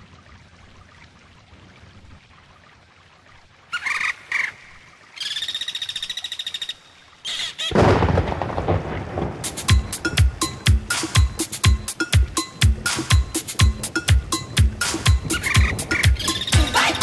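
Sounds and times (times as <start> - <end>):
dance music: 12.4 - 17.0.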